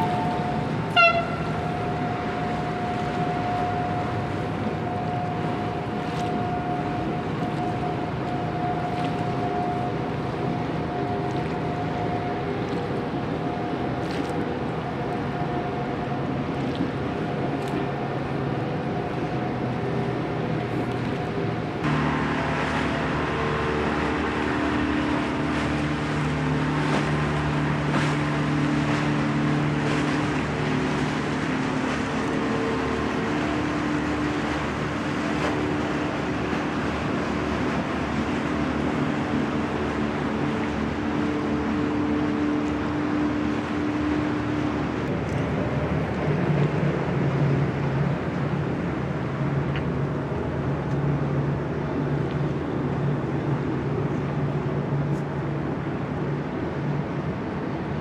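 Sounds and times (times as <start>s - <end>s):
motorboat engine running: 0.0s - 58.0s
water noise: 0.0s - 58.0s
wind: 0.0s - 58.0s.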